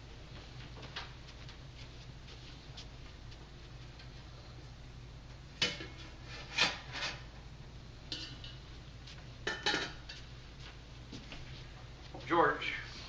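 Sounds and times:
metal trays clinking and clattering: 0:09.5 - 0:10.2.

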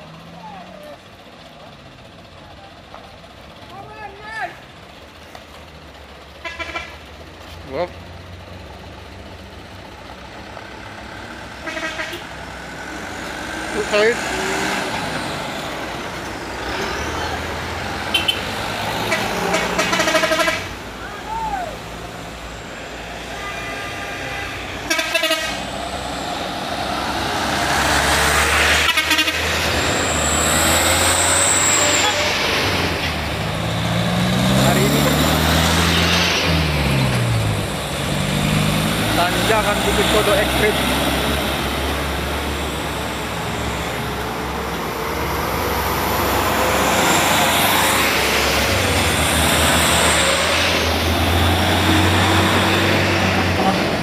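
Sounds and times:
diesel truck engine labouring uphill: 0:00.0 - 0:54.0
tyre and road noise: 0:00.0 - 0:54.0
truck horn toots: 0:06.4 - 0:07.1, 0:11.6 - 0:12.4, 0:18.1 - 0:20.8, 0:23.2 - 0:25.8, 0:28.3 - 0:29.7, 0:31.9 - 0:32.4.

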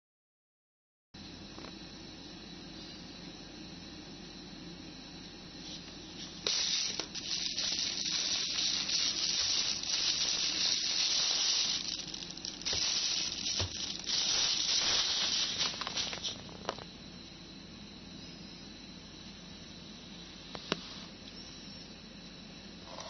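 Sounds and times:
plastic bag rustling: 0:05.7 - 0:16.8.

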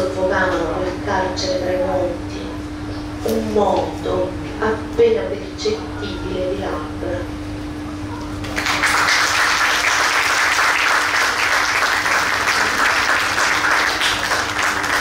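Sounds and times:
audience applauding: 0:08.4 - 0:15.0.

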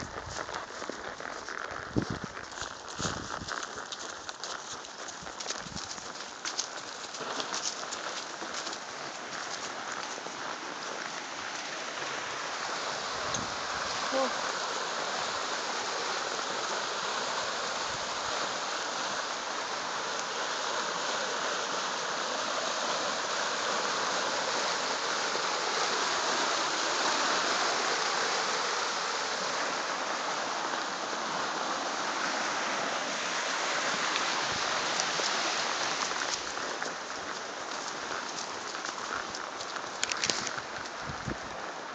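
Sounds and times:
creek water rushing: 0:00.0 - 0:41.9.

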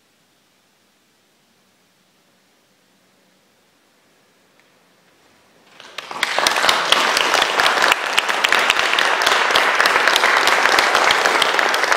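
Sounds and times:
audience applauding: 0:05.6 - 0:11.9.

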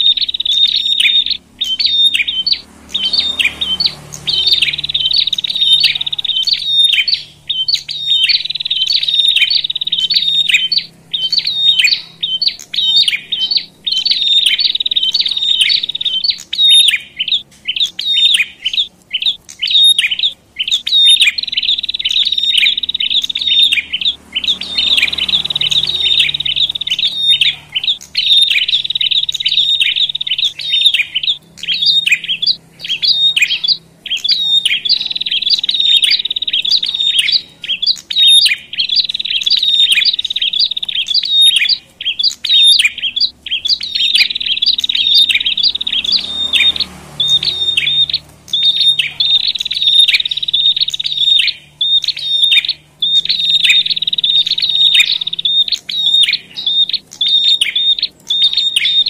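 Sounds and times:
songbirds chattering: 0:00.0 - 0:59.0.

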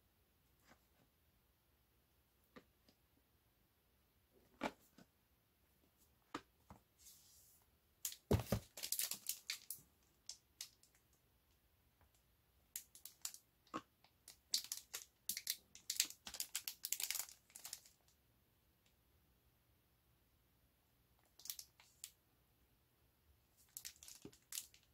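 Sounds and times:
plastic shrink-wrap crinkling: 0:08.1 - 0:09.8, 0:14.5 - 0:18.0, 0:23.7 - 0:24.9.

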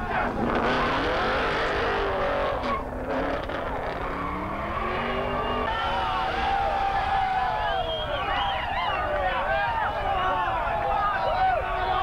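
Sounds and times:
car engine revving: 0:00.0 - 0:07.1.

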